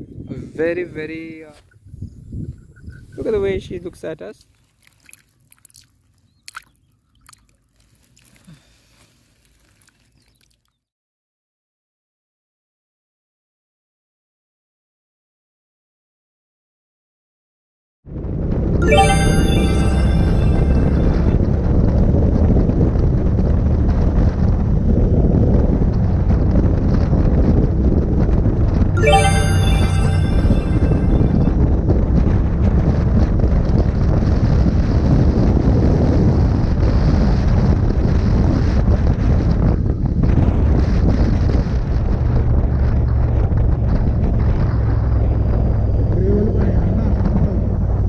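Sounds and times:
wind rushing over microphone: 0.0s - 3.8s
small ripples lapping in shallow water: 4.6s - 8.5s.

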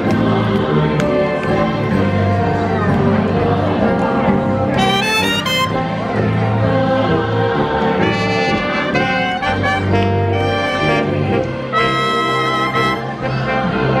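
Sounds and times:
trumpets playing melody: 4.8s - 5.9s, 8.1s - 14.0s.

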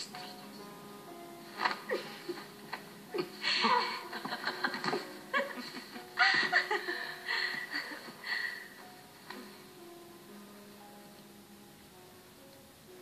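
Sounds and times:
faint soft music: 0.0s - 13.0s
man and woman laughing: 3.2s - 8.1s.

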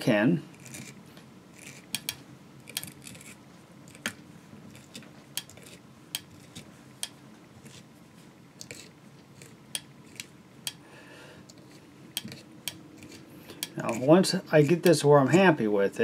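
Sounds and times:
brush bristles ticking off fibres: 11.6s - 15.4s.

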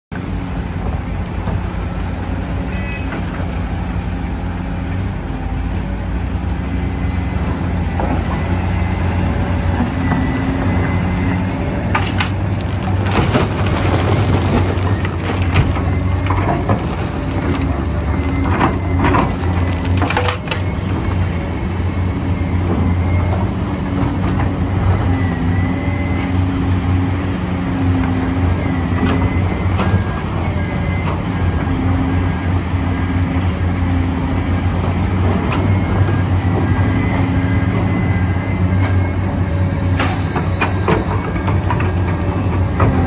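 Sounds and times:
excavator diesel engine running: 0.1s - 43.0s
bucket scraping and clanking on rock: 12.0s - 21.1s.

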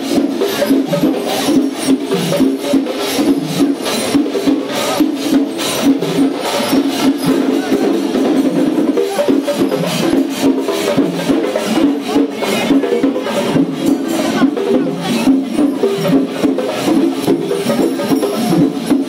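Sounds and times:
cymbals: 0.0s - 19.0s
drums: 0.0s - 19.0s.

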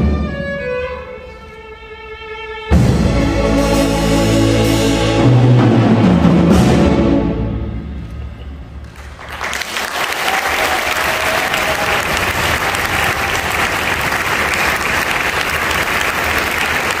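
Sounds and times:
audience applause: 8.8s - 17.0s.

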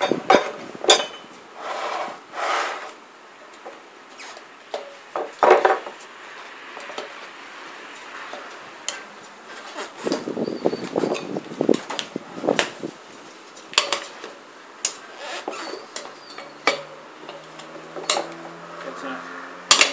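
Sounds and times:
metal tyre levers rattling: 0.0s - 1.4s, 13.6s - 18.6s, 19.7s - 19.9s.

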